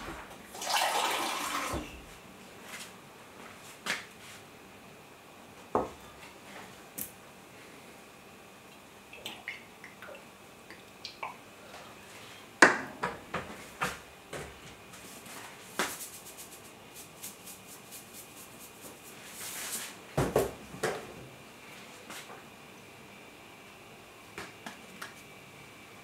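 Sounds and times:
knock on kitchen counter: 20.2 - 21.0.

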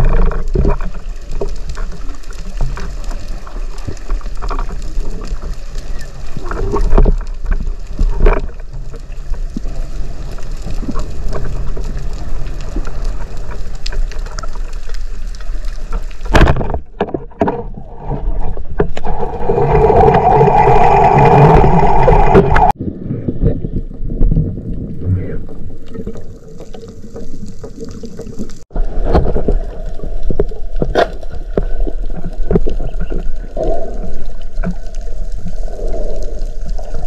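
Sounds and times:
muffled underwater rush: 17.4 - 37.0.

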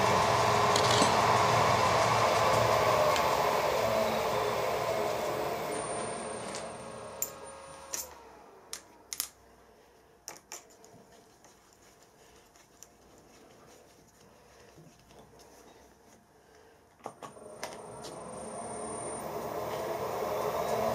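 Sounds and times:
milling machine spindle running down: 0.0 - 8.7, 17.3 - 20.9.

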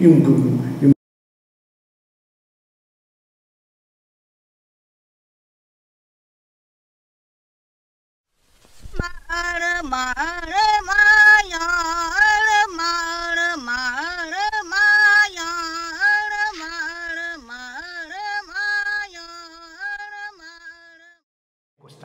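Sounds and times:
woman singing unaccompanied: 8.9 - 21.2.

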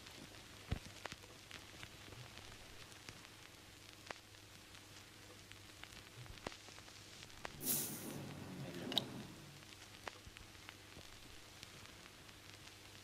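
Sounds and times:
faint hiss: 0.0 - 13.0
gas escaping hiss: 7.4 - 9.8.

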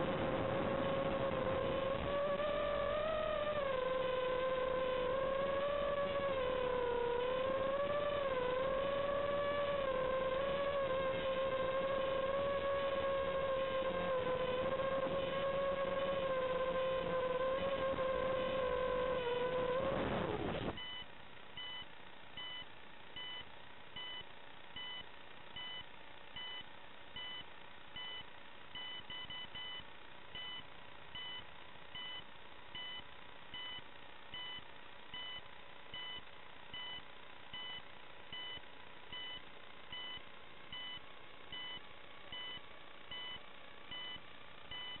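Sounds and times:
steady video link hiss: 0.0 - 45.0
short high buzzer beeps: 42.4 - 45.0.

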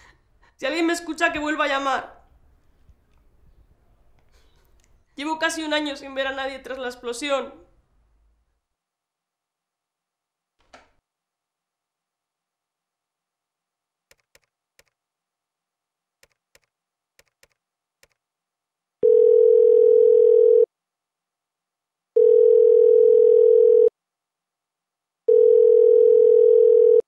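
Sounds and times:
telephone ringing tone: 19.0 - 20.7, 22.2 - 23.9, 25.3 - 27.0.

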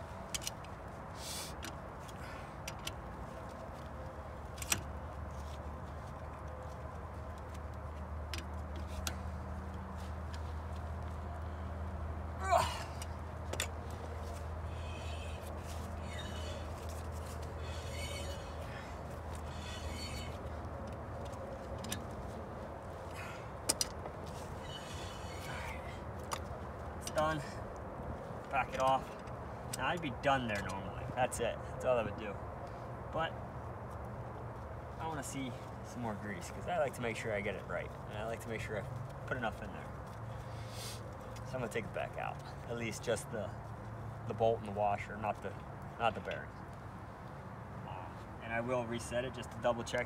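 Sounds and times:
steady low hum: 4.2 - 38.9
hand tools rasping: 14.3 - 20.6.

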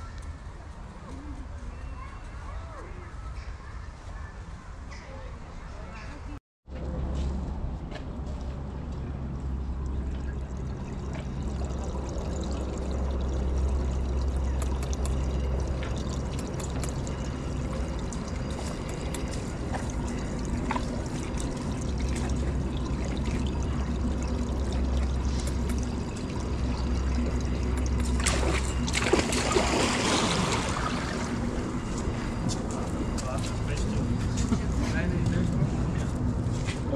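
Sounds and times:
water trickling: 9.5 - 34.4
animal splashing into pool: 27.6 - 31.4.

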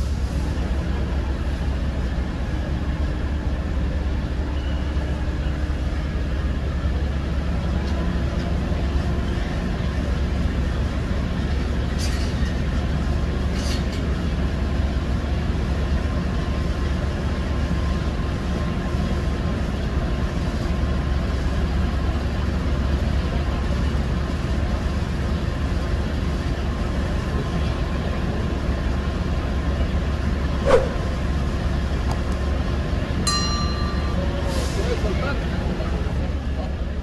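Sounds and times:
brief hisses: 30.6 - 31.1.

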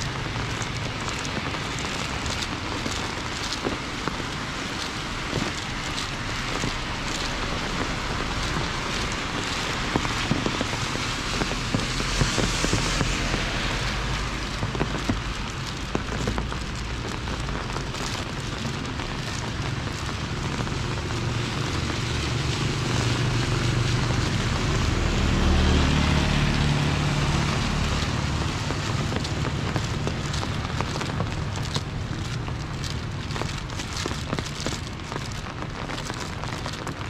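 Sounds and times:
steady rain falling: 0.0 - 37.0
vehicle engine low hum: 16.7 - 35.6.

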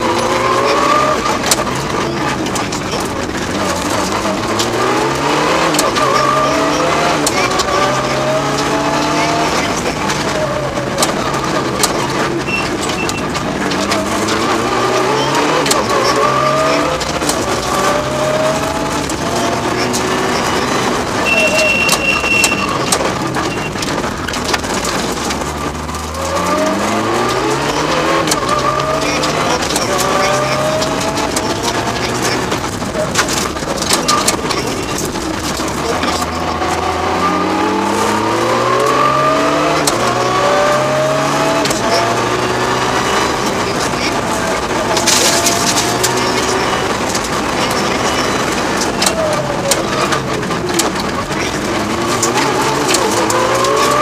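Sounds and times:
car engine revving through upshifts: 0.0 - 54.0
road and drivetrain noise: 0.0 - 54.0
sharp clicks and rattles: 0.0 - 54.0
tyres crunching over gravel: 0.0 - 54.0.

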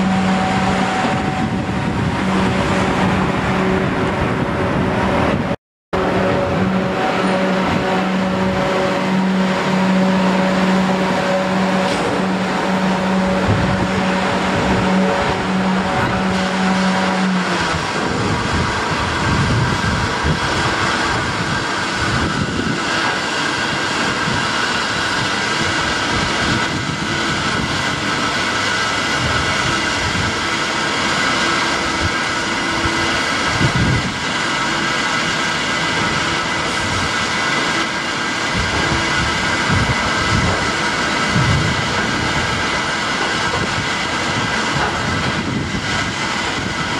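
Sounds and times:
low rumbles: 0.0 - 22.9
high hums: 0.0 - 46.9
train creeping through wash plant: 0.0 - 46.9.

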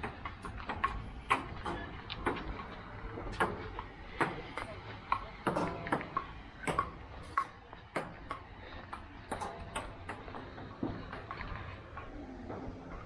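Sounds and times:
table tennis ball pinging: 3.3 - 10.2.

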